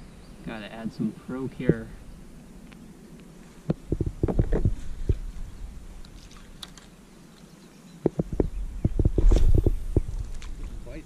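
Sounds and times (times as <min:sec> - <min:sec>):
soft knocks and clatter on kayak: 0:03.7 - 0:05.2.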